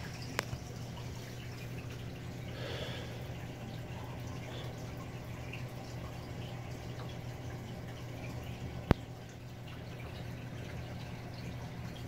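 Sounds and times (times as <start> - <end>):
aquarium filter bubbling: 0.0 - 12.0.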